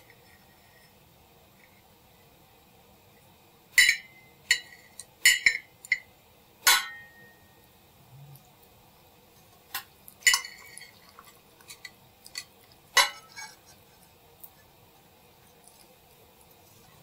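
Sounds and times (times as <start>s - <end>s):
cutlery clinking against a dish: 3.8s - 7.4s, 9.7s - 13.8s.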